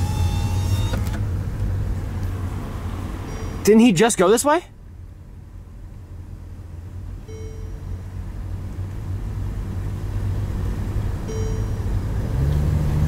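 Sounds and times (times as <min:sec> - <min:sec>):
engine and road rumble: 0:00.0 - 0:13.0
short pitched chime: 0:03.3 - 0:03.8, 0:07.3 - 0:08.1, 0:11.3 - 0:12.1.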